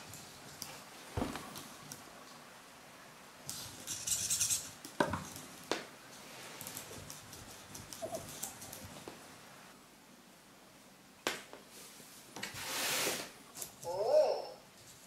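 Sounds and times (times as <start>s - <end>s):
short high hiss: 12.5s - 13.4s.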